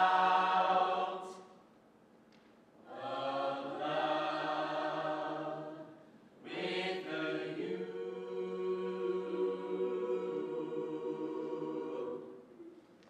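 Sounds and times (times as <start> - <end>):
vocal ensemble holding a chord: 0.0 - 1.5, 2.9 - 12.8.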